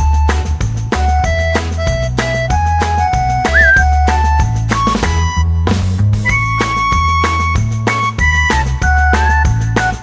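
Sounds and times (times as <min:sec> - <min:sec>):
drums: 0:00.0 - 0:10.0
held melody notes: 0:03.5 - 0:03.9.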